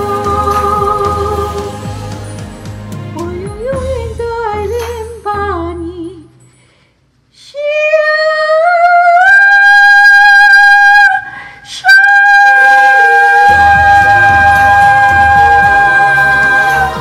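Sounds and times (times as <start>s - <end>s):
singer holding high note: 11.1s - 17.0s
accompanying melody: 12.3s - 17.0s
backing band playing: 13.4s - 17.0s.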